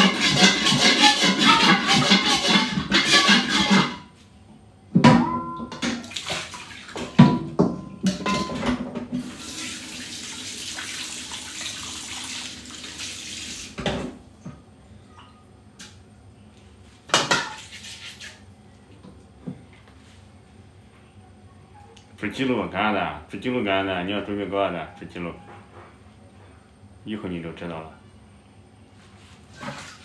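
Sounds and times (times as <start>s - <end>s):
metal kitchenware clanking: 0.0s - 4.0s, 5.1s - 6.1s, 7.0s - 8.8s
kitchen tap running: 9.1s - 14.0s.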